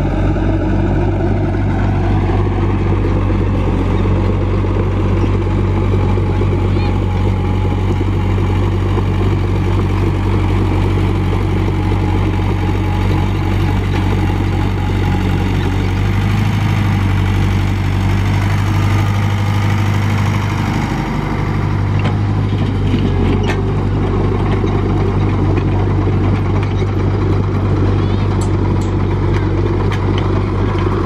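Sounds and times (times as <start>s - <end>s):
diesel engine humming: 0.0s - 31.0s.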